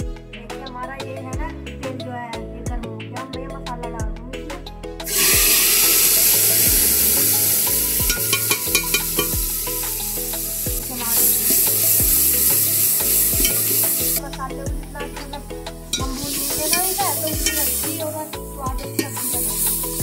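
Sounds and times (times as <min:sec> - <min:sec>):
paste sizzling in hot oil: 0:05.1 - 0:14.2, 0:16.0 - 0:20.0
spoon stirring in metal pot: 0:07.8 - 0:09.4, 0:11.2 - 0:14.2, 0:15.9 - 0:18.0, 0:18.8 - 0:20.0.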